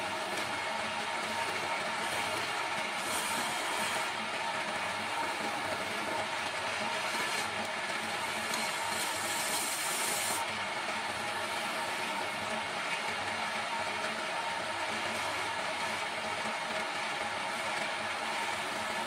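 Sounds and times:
lathe electric motor running: 0.0s - 19.0s
turning tool scraping wood: 2.1s - 4.2s, 6.7s - 7.6s, 8.3s - 10.4s.

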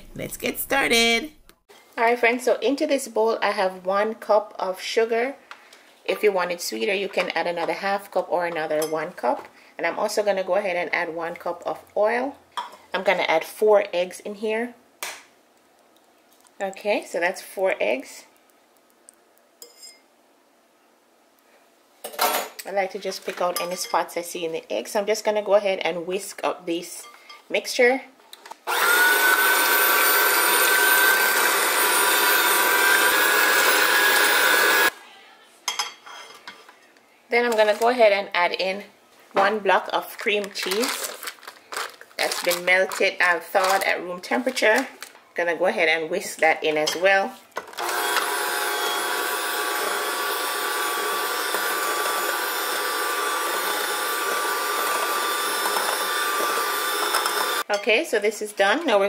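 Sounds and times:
electric hand mixer whisking: 28.7s - 34.9s, 47.8s - 57.6s.

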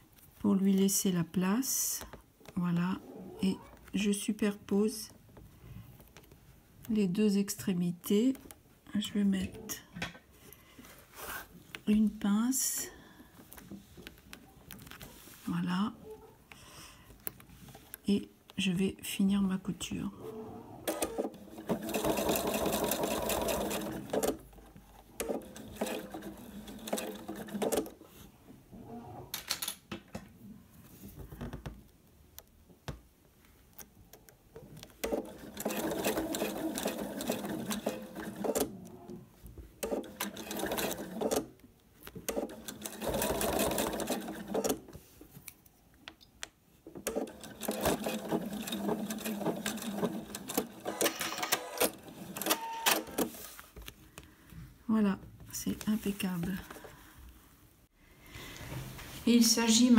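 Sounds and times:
sewing machine stitching: 20.8s - 28.0s, 34.8s - 39.2s, 39.8s - 44.9s, 47.0s - 53.4s.

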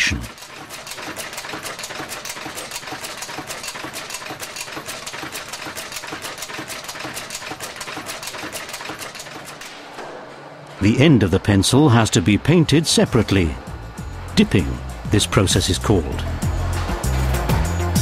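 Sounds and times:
stamping machine clattering: 0.2s - 10.4s.

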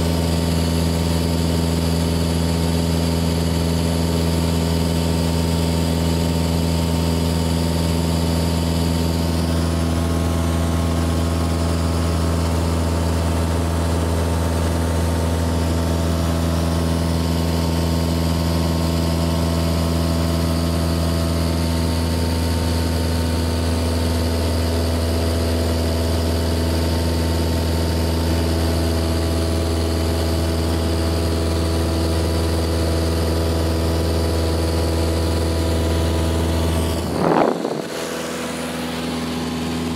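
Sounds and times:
propeller aircraft engine drone: 0.0s - 39.9s.

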